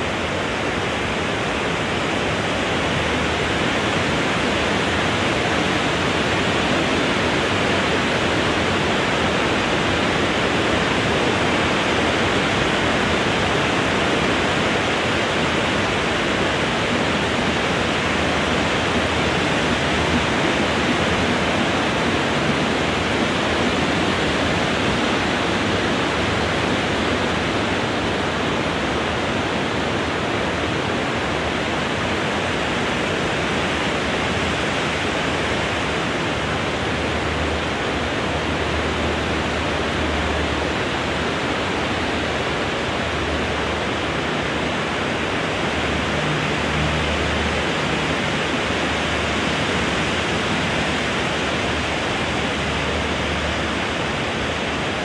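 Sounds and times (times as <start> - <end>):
wind blowing through trees: 0.0 - 55.0.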